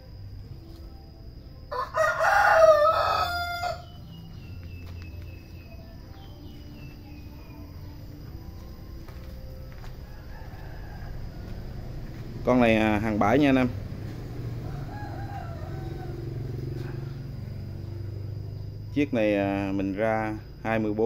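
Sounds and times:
rooster crowing: 1.6 - 4.5, 9.7 - 18.7.

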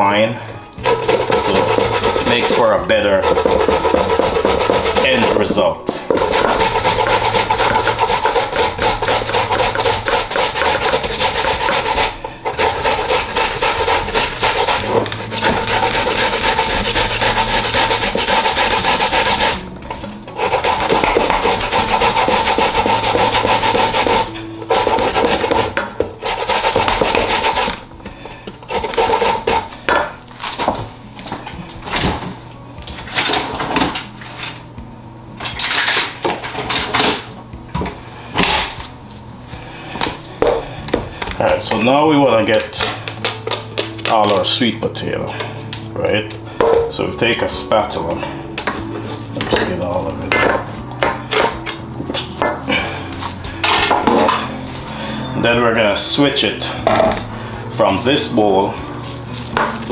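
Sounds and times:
grating on metal grater: 0.8 - 5.5, 6.1 - 19.6, 20.4 - 27.8, 28.7 - 29.7.

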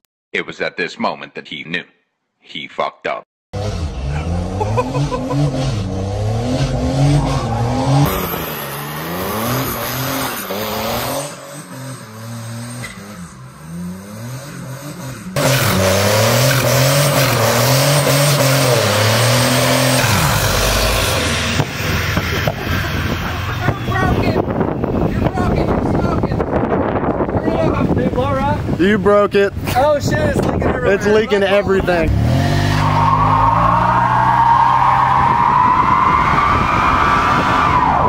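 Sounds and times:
van engine revving: 3.5 - 27.2, 31.8 - 35.5
tires squealing: 3.6 - 26.0, 31.8 - 38.0.

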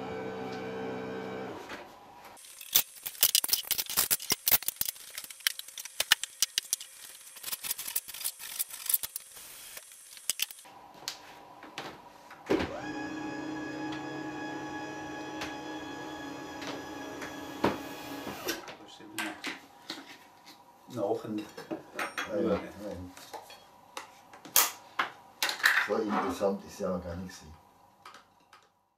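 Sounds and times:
electric lift motor whining: 0.0 - 1.6, 12.6 - 18.6.

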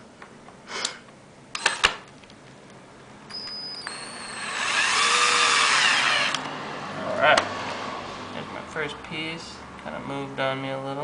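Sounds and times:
drill motor whining: 3.7 - 6.5.

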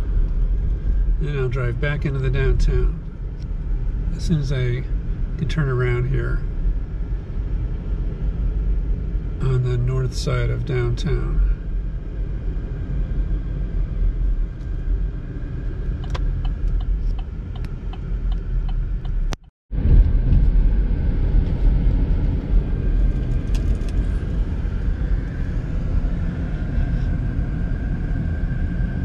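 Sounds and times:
car engine and tyre rumble: 0.0 - 29.0
light ticks: 16.0 - 19.5.

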